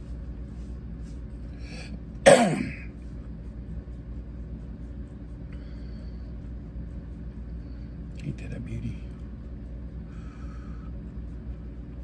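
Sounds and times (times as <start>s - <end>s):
steady low hum: 0.0s - 12.0s
person coughing: 2.2s - 3.0s.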